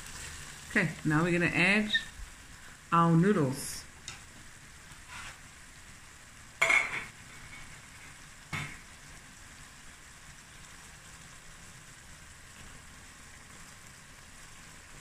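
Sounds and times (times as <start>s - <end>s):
vegetables sizzling in a pan: 0.0s - 15.0s
loud kitchen clatter: 6.6s - 7.7s.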